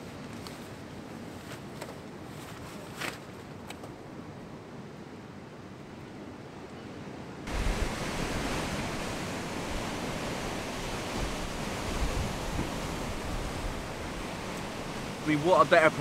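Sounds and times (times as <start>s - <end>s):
open-air background: 0.0s - 16.0s
wind gusting on microphone: 7.4s - 16.0s
heavy surf breaking on rocks: 7.5s - 16.0s.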